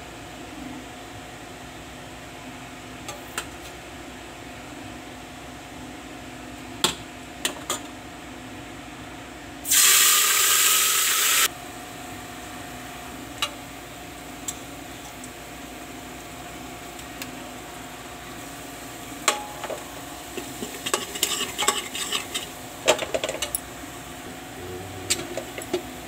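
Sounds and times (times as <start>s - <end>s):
utensils clinking on steel cookware: 20.6s - 23.6s
steady hum: 23.7s - 26.0s.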